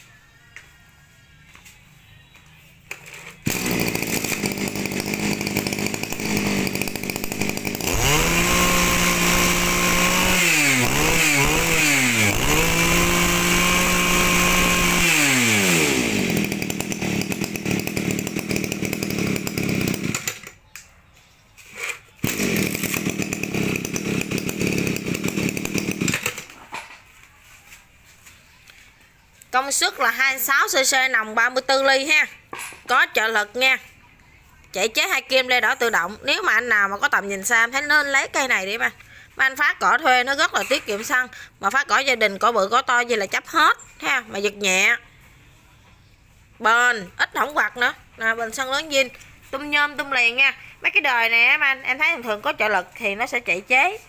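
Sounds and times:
brush cutter engine revving: 3.0s - 20.5s, 21.8s - 26.6s.

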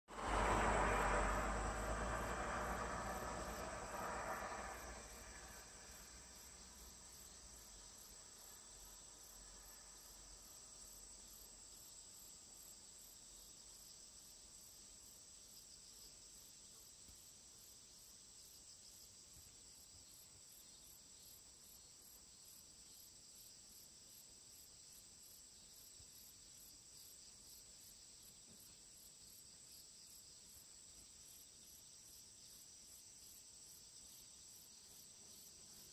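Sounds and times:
low rumble: 0.1s - 6.2s
insect trill: 0.1s - 35.9s.

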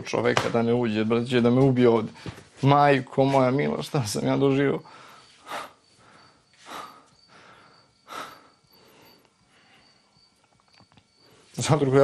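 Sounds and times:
man breathing heavily: 4.8s - 10.2s.

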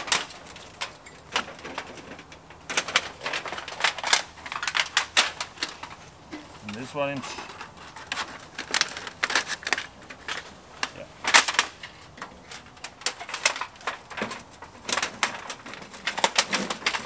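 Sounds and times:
metal chimney pipe rattling: 0.0s - 17.0s.

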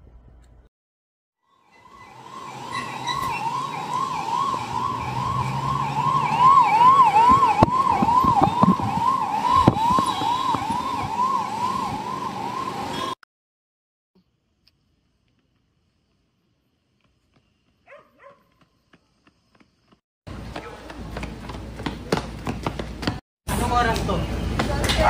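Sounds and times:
ambulance siren yelping: 1.5s - 13.2s.

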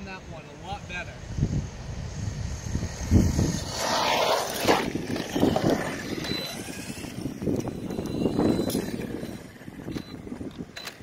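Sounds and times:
toy car motors and tyres: 0.8s - 11.0s.

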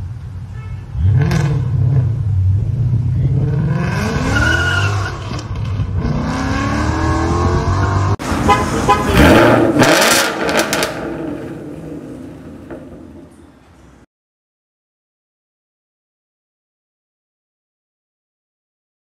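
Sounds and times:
car engine accelerating hard: 1.0s - 12.0s.

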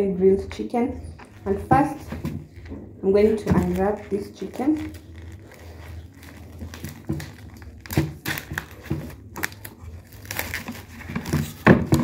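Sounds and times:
plastic wrap crinkling: 1.0s - 12.0s
scissors cutting plastic: 3.2s - 12.0s.

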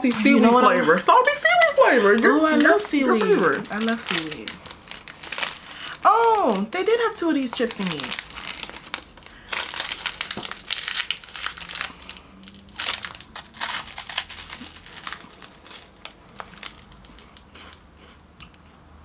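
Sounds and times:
plastic wrapper crinkling: 0.0s - 17.9s.

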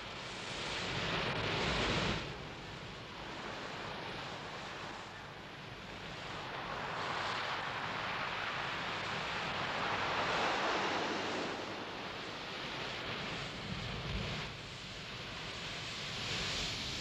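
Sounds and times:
sea surf breaking on beach: 6.1s - 17.0s.

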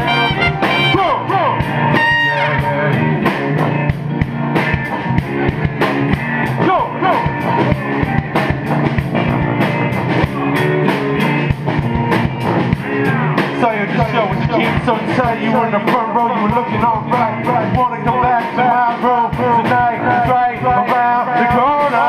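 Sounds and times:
person singing: 0.0s - 3.2s, 13.0s - 22.0s
drum kit beat: 0.0s - 22.0s
live band playing upbeat song: 0.0s - 22.0s
sousaphone bass line: 0.0s - 22.0s.

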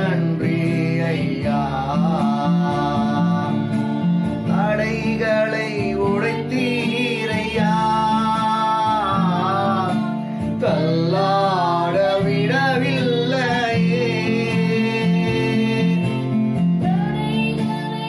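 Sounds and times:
guitar accompaniment: 0.0s - 18.0s
person singing: 0.0s - 18.0s.

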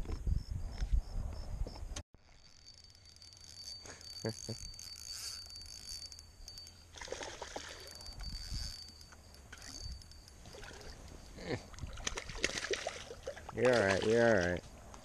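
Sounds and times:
wind rumbling on microphone: 0.0s - 2.0s, 7.4s - 15.0s
fish splashing at surface: 11.8s - 14.1s.

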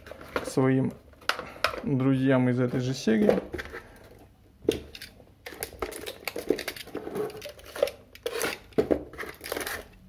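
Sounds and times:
plastic packaging crinkling: 5.0s - 10.0s.

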